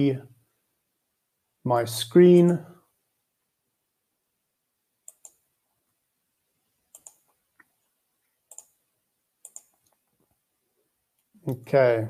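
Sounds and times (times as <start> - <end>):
computer mouse clicking: 5.0 - 5.5, 6.9 - 7.7, 8.5 - 8.8, 9.4 - 10.1.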